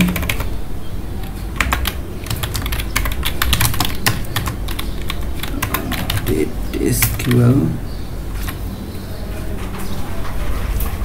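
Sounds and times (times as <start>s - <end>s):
keyboard typing: 0.0s - 0.5s, 1.2s - 7.7s.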